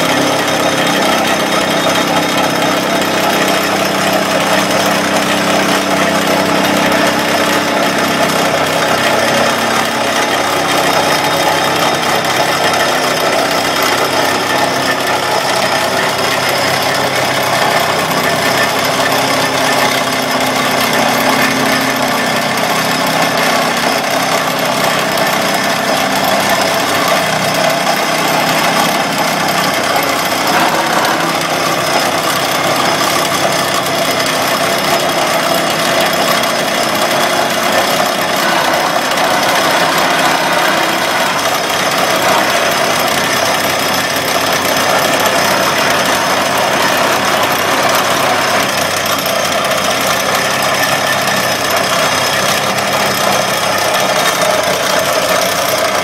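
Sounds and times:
vibratory pile driver running: 0.0s - 56.0s.

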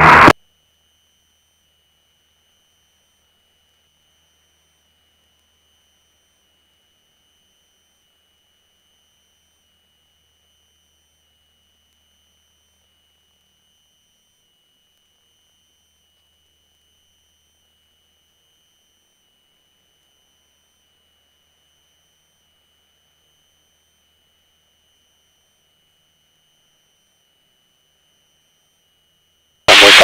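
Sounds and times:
faint high-pitched tone: 29.7s - 30.0s.

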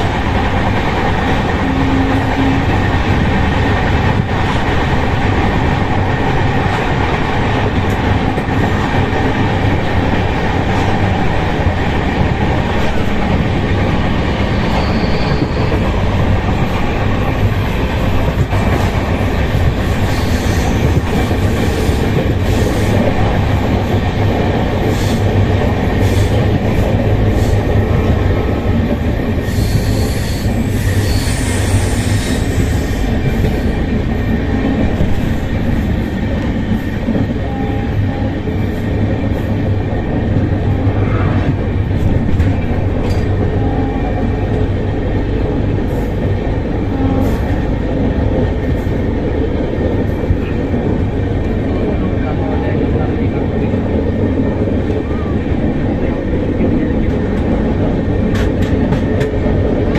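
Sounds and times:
train wheels rumbling on rail: 0.0s - 59.9s
high wheel squeal: 14.5s - 15.9s.

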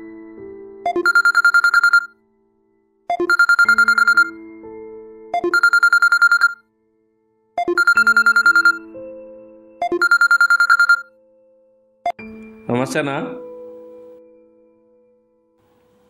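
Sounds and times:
phone ringtone trilling: 0.9s - 2.1s, 3.1s - 4.4s, 5.4s - 6.6s, 7.6s - 8.9s, 9.8s - 11.1s.

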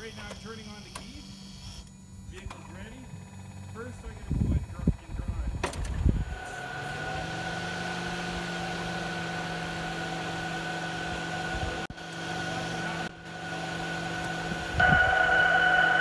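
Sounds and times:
electronic vehicle warning hum: 0.0s - 16.0s.

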